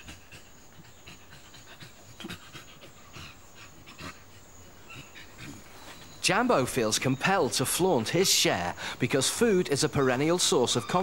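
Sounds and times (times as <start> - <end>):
chimpanzees eating: 0.0 - 11.0.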